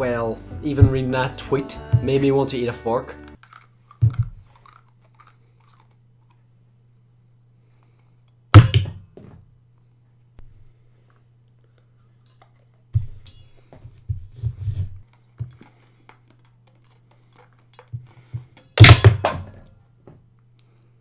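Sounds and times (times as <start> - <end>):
thuds and metallic clinks: 8.6 - 9.4, 13.0 - 13.9, 17.7 - 19.7.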